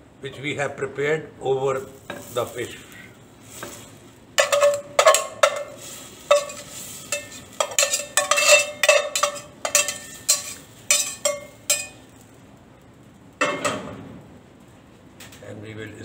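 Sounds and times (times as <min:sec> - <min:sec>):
metal spoon scraping saucepan: 0:03.6 - 0:12.0.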